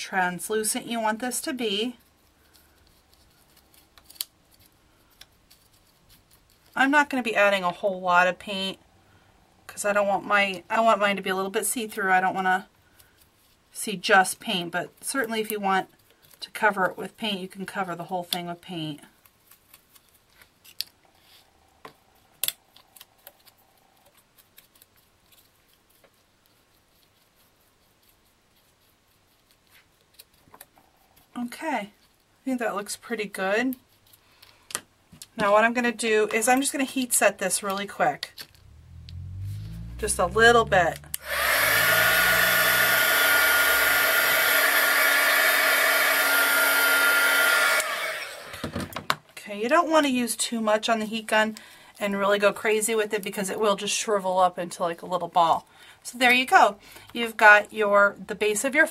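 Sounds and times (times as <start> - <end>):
heat gun blowing air: 41.0 - 48.8
heat gun whine: 41.0 - 48.8.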